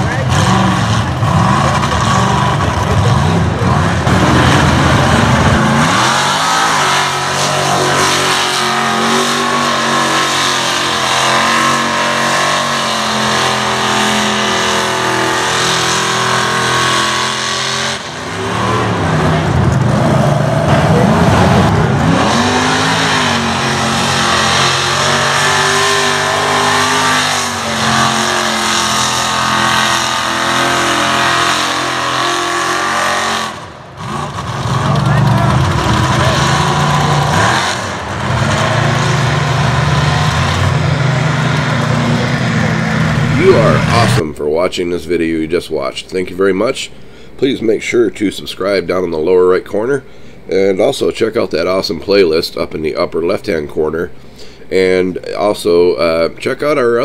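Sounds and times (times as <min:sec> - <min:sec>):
truck engines revving: 0:00.0 - 0:45.5.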